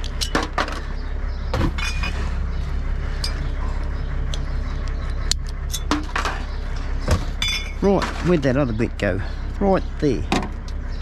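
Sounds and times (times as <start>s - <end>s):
steady low rumble: 0.0s - 11.0s
glass bottles clinking: 1.6s - 2.2s, 5.7s - 8.5s.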